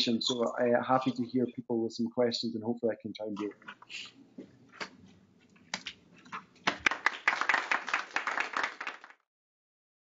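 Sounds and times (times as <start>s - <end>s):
people clapping: 6.6s - 9.2s.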